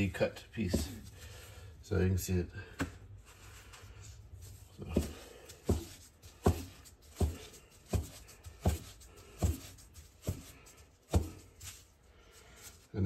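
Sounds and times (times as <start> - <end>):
scraper chopping dough thuds: 0.6 - 1.2, 4.8 - 11.8.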